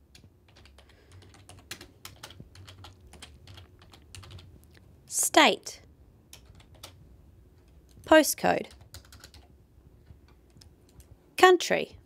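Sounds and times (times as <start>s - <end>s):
keyboard typing clicks: 8.7s - 9.5s.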